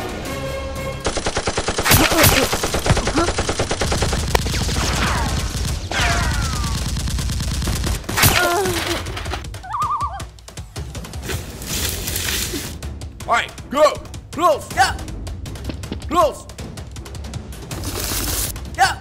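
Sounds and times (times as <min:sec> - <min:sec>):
machine-gun bursts: 0:01.0 - 0:09.3.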